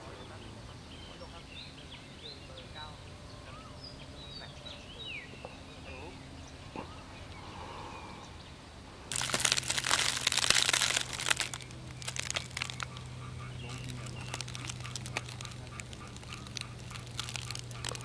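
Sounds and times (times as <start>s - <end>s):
low steady hum: 0.0s - 18.0s
dry leaves crunching: 9.1s - 18.0s.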